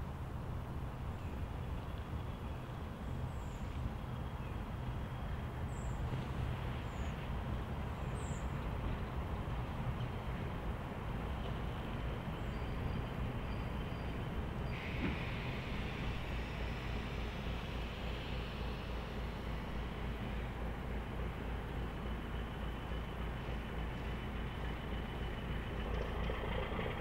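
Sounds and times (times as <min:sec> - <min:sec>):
diesel locomotive rumbling: 0:00.0 - 0:27.0
high hiss: 0:14.7 - 0:21.0.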